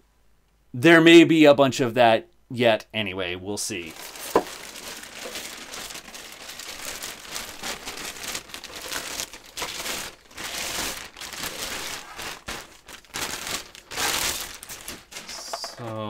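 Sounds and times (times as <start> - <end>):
plastic bag crinkling: 3.7 - 16.0.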